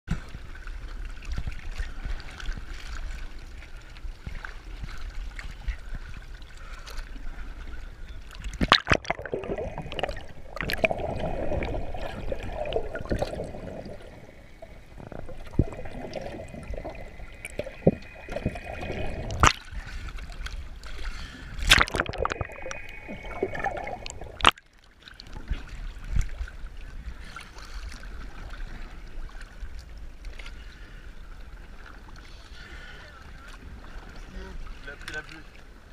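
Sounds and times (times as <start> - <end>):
seawater sloshing and splashing: 0.1 - 35.9
muffled underwater sound: 4.2 - 24.5
sharp splashes: 8.4 - 14.2, 15.3 - 24.6.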